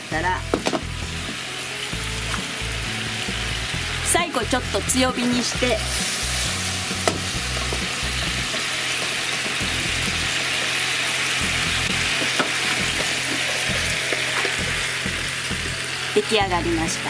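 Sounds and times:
meat sizzling in a frying pan: 0:00.1 - 0:17.0.

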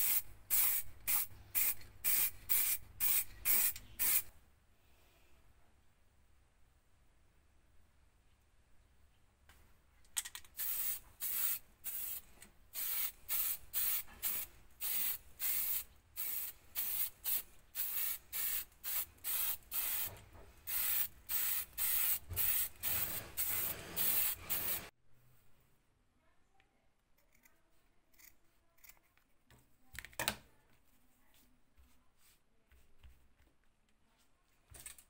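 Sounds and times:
aerosol can spraying in bursts: 0:00.0 - 0:04.3, 0:10.6 - 0:24.9.

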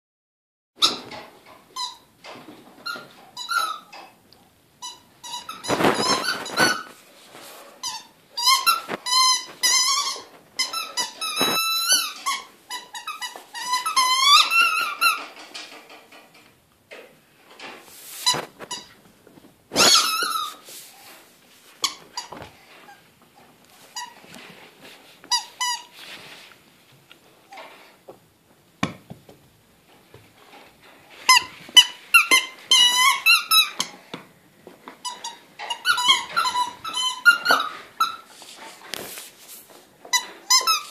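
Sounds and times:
squeaky rubber ball squeaking: 0:01.8 - 0:02.1, 0:02.8 - 0:03.9, 0:04.8 - 0:07.0, 0:07.8 - 0:15.2, 0:19.7 - 0:20.6, 0:21.8 - 0:23.0, 0:25.3 - 0:25.9, 0:31.3 - 0:34.0, 0:35.0 - 0:38.3, 0:40.1 - 0:40.9.

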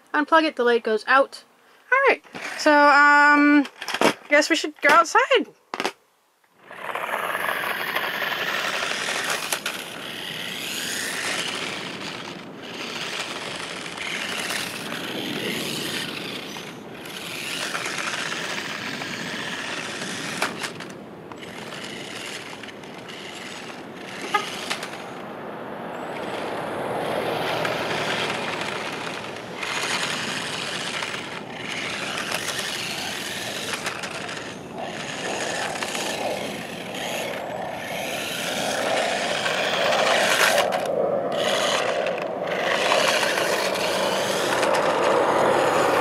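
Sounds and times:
toy car rolling on asphalt: 0:02.2 - 0:46.0.

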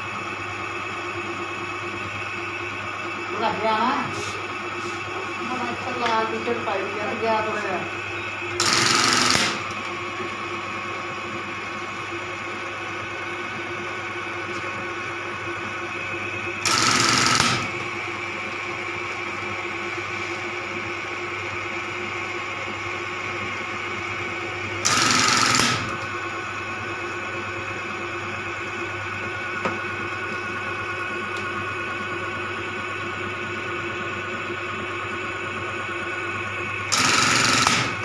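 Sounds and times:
sewing machine motor humming: 0:05.1 - 0:10.1, 0:16.6 - 0:19.2, 0:24.8 - 0:26.4, 0:36.9 - 0:38.0
sewing machine clattering: 0:08.6 - 0:09.6, 0:16.6 - 0:17.7, 0:24.8 - 0:25.9, 0:36.9 - 0:38.0.

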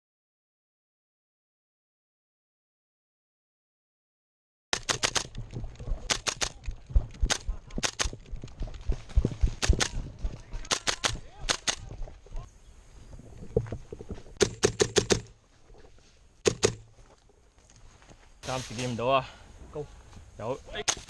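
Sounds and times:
airsoft rifle shots: 0:04.8 - 0:05.4, 0:06.0 - 0:08.2, 0:09.5 - 0:10.0, 0:14.4 - 0:15.3, 0:16.4 - 0:16.9, 0:20.8 - 0:21.0.

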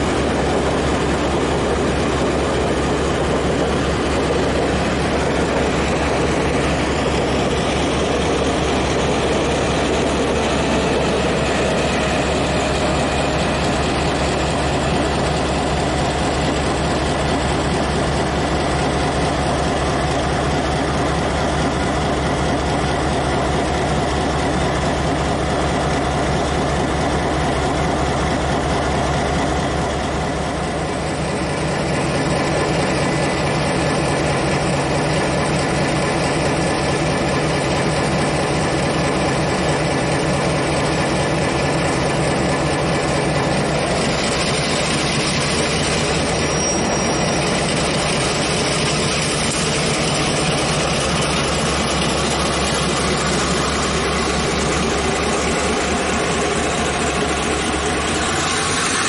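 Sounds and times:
locomotive engine throbbing: 0:00.0 - 0:59.0.

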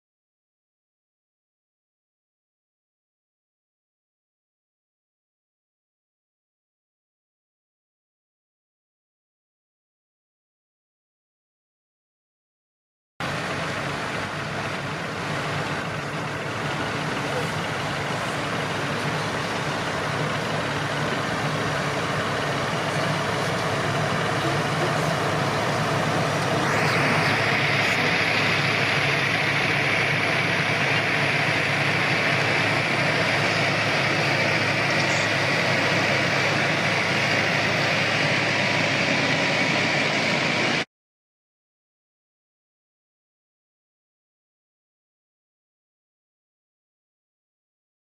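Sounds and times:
tractor engine running: 0:13.2 - 0:40.8.

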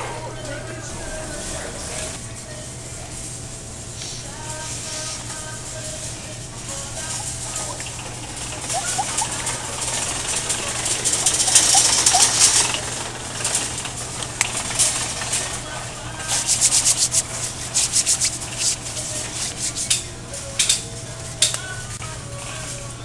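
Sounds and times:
steady low hum: 0:00.0 - 0:23.0
rubbing and scraping handling noise: 0:03.0 - 0:21.2.

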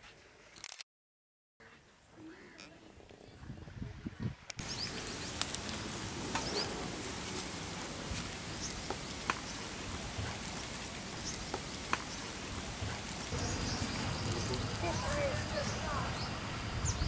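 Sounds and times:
steady hiss: 0:04.4 - 0:17.0.

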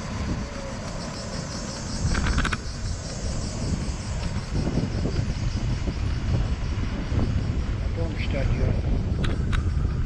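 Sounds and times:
wind buffeting microphone: 0:00.0 - 0:10.0
rattle of clicks: 0:00.1 - 0:04.6, 0:09.2 - 0:10.0.

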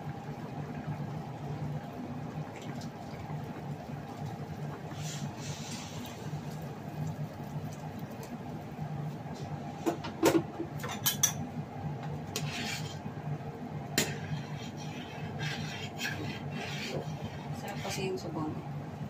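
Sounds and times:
steady low hum: 0:00.0 - 0:19.0
swishing stirs: 0:12.3 - 0:13.1, 0:14.0 - 0:18.4.

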